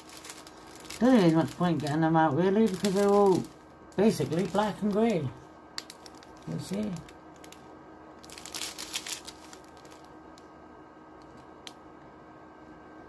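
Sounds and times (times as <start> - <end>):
plastic packets crinkling: 0.0 - 10.2.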